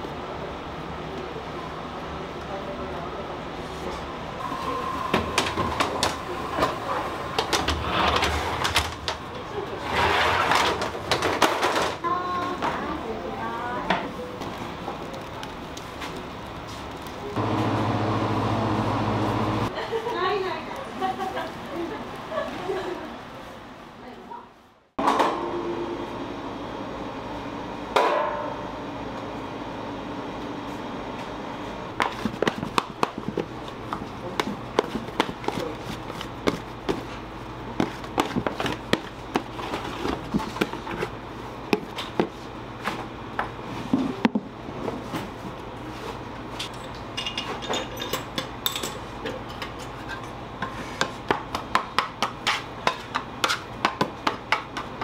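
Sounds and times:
steady hum: 0:03.1 - 0:11.2, 0:17.2 - 0:19.7.

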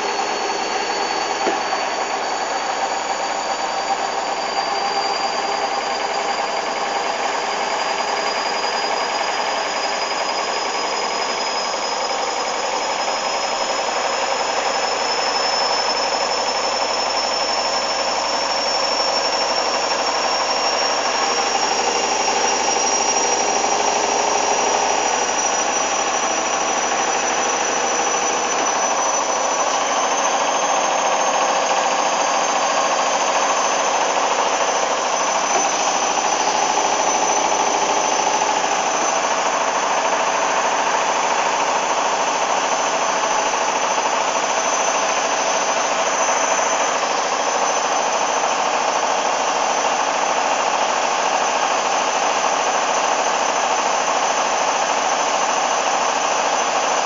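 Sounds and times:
washing machine drum spinning: 0:00.0 - 0:04.5, 0:18.3 - 0:46.8
high motor whine: 0:00.0 - 0:57.0.

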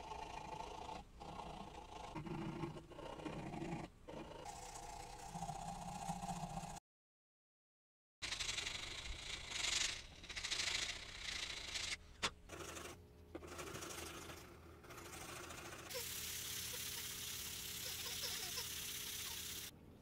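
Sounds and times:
hand sanding on sandpaper: 0:13.5 - 0:19.7.

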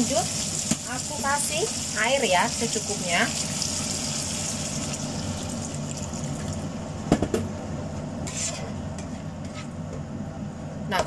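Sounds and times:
water pouring into hot wok: 0:00.0 - 0:06.6.

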